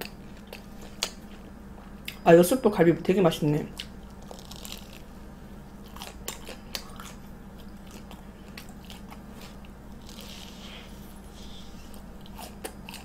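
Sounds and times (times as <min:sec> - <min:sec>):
biting and chewing: 0:00.0 - 0:02.2, 0:03.8 - 0:13.0
steady low hum: 0:00.0 - 0:13.0
crisp crunches: 0:04.1 - 0:05.1.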